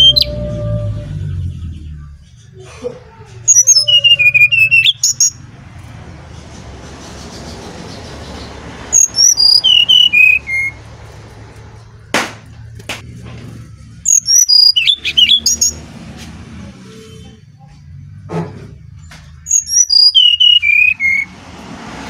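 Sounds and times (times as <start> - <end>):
flute-like whistled birdsong: 0.0 - 2.6, 3.4 - 5.5, 7.1 - 11.2, 14.0 - 15.8, 19.3 - 21.3.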